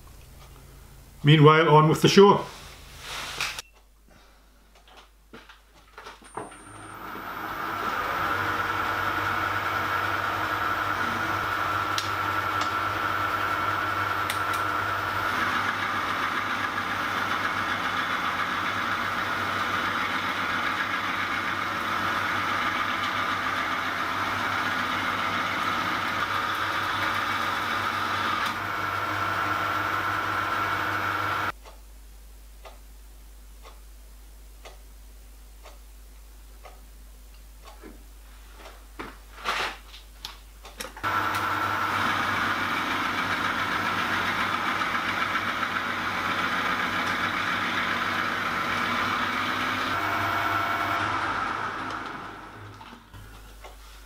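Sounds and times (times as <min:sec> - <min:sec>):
metal lathe humming and whining: 0:06.8 - 0:31.5, 0:41.0 - 0:53.0.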